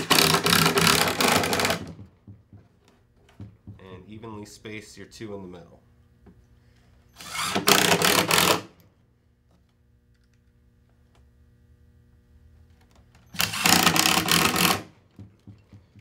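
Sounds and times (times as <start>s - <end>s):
impact driver driving screw into wood: 0.0s - 2.1s, 7.2s - 8.8s, 13.3s - 15.6s.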